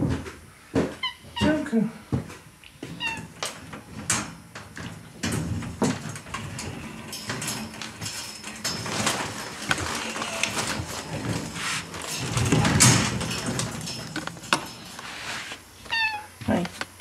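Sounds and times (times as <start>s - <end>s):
handling and shuffling noise: 0.0s - 17.0s
door opening: 3.0s - 15.1s.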